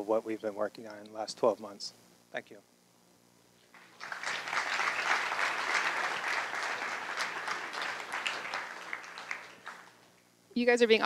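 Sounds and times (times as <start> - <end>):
audience applause: 3.8 - 10.1.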